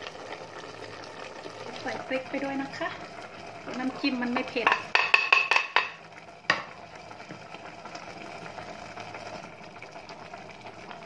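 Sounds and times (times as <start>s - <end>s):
soup simmering hiss: 0.0s - 11.0s
glass bowl clinking on metal pot: 4.6s - 6.6s.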